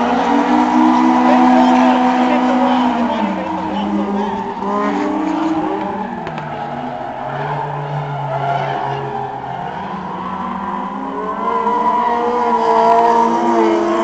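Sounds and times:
car engines revving: 0.0 - 14.0
tyres squealing and skidding: 0.0 - 14.0.

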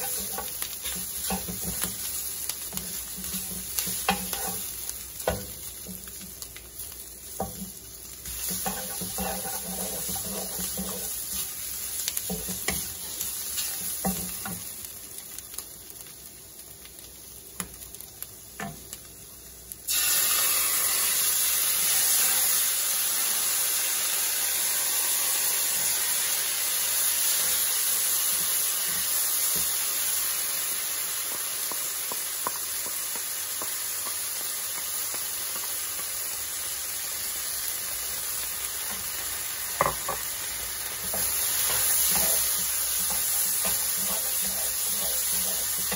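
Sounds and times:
wooden spatula scraping a pan: 0.0 - 5.5, 7.4 - 14.6, 41.0 - 45.9
food sizzling in a wok: 0.0 - 45.9.

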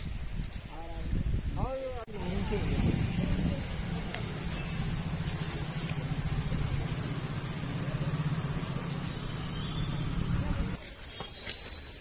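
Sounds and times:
engine idling: 2.2 - 10.8.

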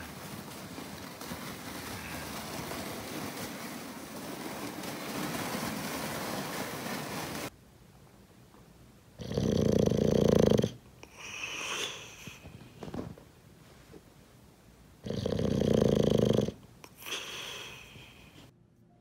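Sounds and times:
sled scraping over snow: 0.0 - 7.5.

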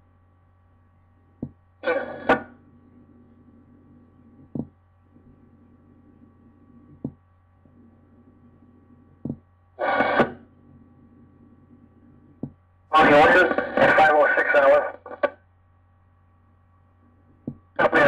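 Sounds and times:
radio scanner hum: 0.0 - 18.0
radio static burst: 1.8 - 2.6, 9.8 - 10.5, 12.9 - 15.4, 17.8 - 18.0.

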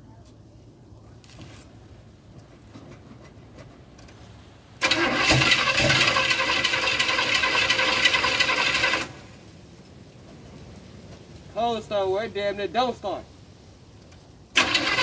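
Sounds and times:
engine starter cranking: 4.8 - 9.3, 14.5 - 15.0.

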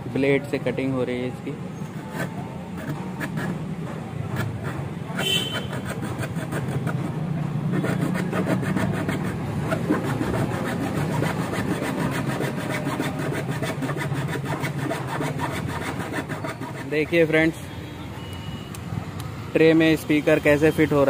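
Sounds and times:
hand saw cutting plywood: 1.9 - 17.4.

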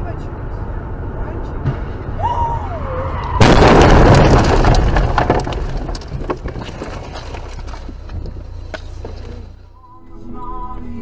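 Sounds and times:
car crash: 3.2 - 9.2
metal crunching: 3.4 - 9.6
knocks and rattles: 3.6 - 9.3.

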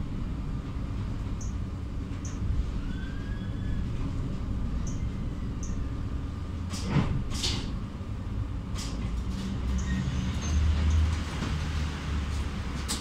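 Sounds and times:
electrical equipment humming: 0.0 - 9.1
tram doors clunking open: 6.5 - 8.0.

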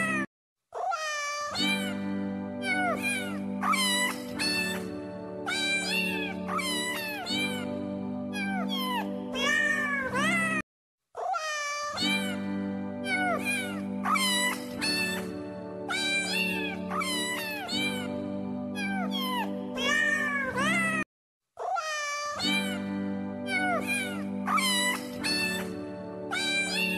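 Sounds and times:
cat meowing: 0.0 - 2.0, 2.6 - 4.9, 5.5 - 7.7, 8.3 - 10.6, 11.2 - 12.4, 13.0 - 15.3, 15.9 - 18.1, 18.8 - 21.0, 21.6 - 22.8, 23.5 - 25.7, 26.3 - 26.9
background music: 1.6 - 10.6, 12.0 - 21.0, 22.4 - 26.9.

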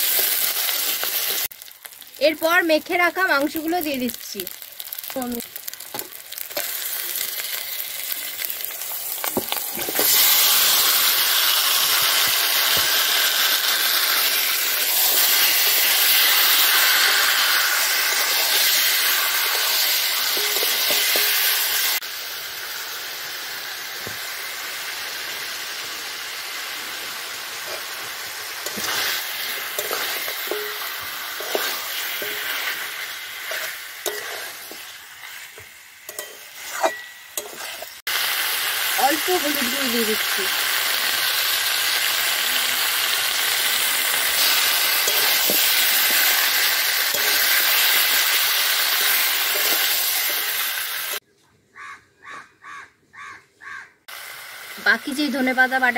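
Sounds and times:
chicken sizzling in hot oil: 0.0 - 51.2, 54.0 - 55.9
spatula scraping a metal pan: 28.6 - 32.8, 33.4 - 35.5, 36.1 - 38.0.

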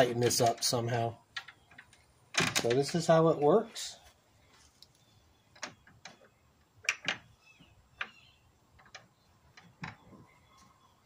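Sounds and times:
wooden door latch clicking: 1.4 - 3.0, 6.8 - 7.3.

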